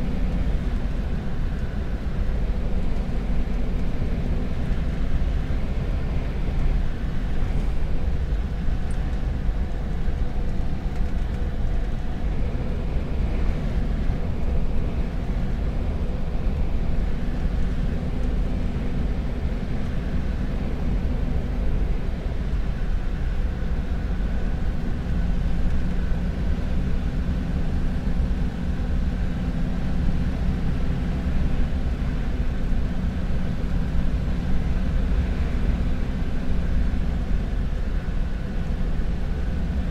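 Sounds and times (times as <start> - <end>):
road noise: 0.0 - 27.5.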